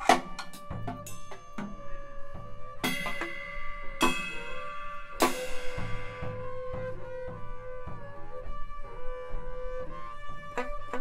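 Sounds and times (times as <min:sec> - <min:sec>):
light drum kit strikes: 0:00.0 - 0:08.1.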